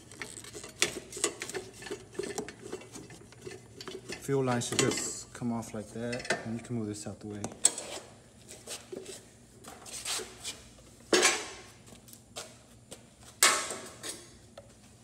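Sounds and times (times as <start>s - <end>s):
metal tools clinking: 0.2s - 5.2s.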